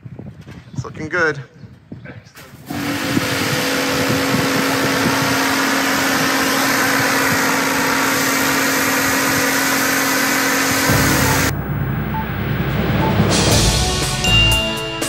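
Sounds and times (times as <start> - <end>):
water jet hissing: 2.7 - 11.5
pressure washer motor hum: 2.7 - 12.1.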